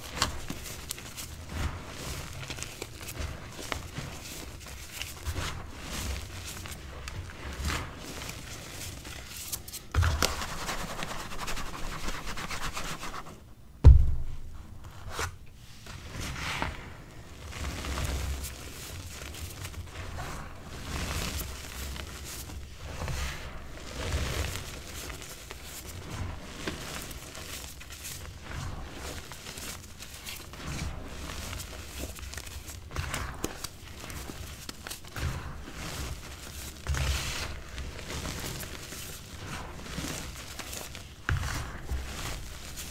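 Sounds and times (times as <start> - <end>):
thump: 13.8 - 14.5.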